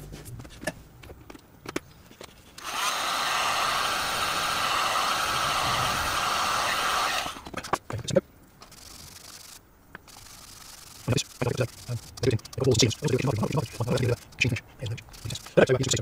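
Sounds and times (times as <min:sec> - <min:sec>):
hot air gun blowing: 0:02.6 - 0:07.5.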